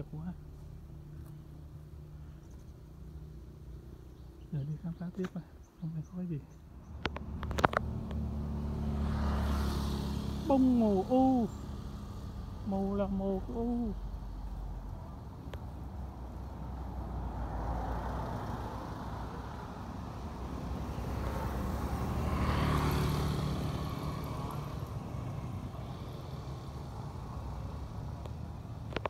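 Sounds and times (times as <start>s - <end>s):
street noise: 0.0s - 29.0s
vehicle passing close by: 6.8s - 29.0s.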